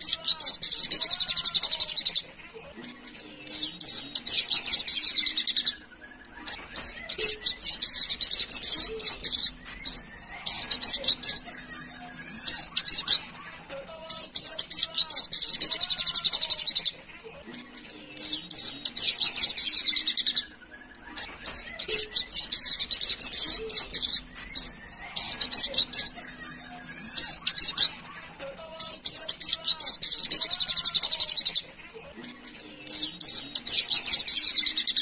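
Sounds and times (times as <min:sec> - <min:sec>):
bird chattering trills: 0:03.2 - 0:17.0, 0:18.1 - 0:28.1, 0:32.6 - 0:35.0.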